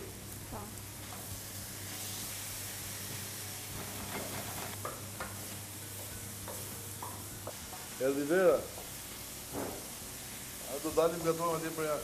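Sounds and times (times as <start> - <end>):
food sizzling in frying pan: 0.0 - 12.0.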